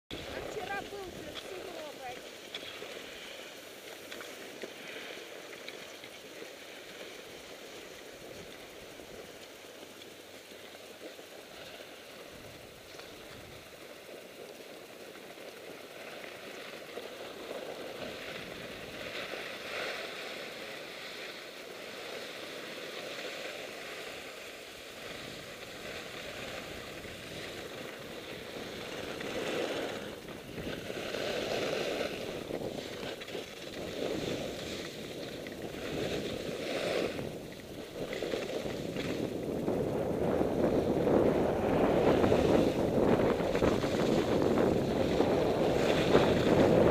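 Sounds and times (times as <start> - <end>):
wind on microphone: 0.1 - 3.3, 24.0 - 46.9
skis scraping on snow: 0.1 - 46.9.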